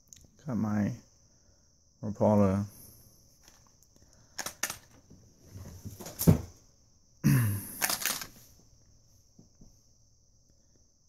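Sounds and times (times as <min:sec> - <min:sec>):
plastic package clicks: 0:04.4 - 0:05.0, 0:07.8 - 0:08.3
plastic package rustling and knocking: 0:04.4 - 0:06.5.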